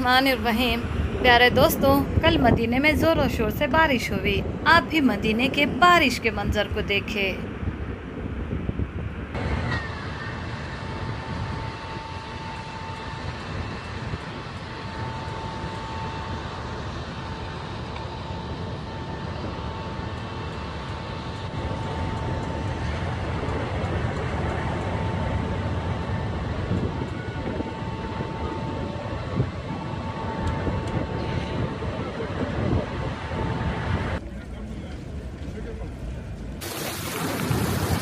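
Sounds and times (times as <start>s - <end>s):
vehicles rushing through water: 36.6s - 38.0s.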